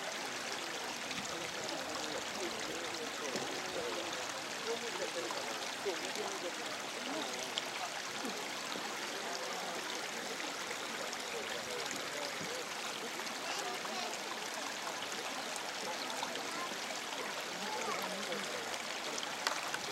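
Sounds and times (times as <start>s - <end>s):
faint murmur of voices: 0.0s - 19.9s.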